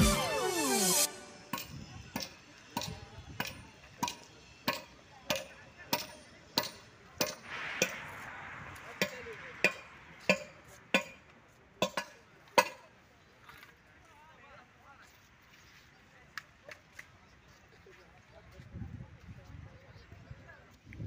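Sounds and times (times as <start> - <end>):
soft hiss: 7.0 - 11.8.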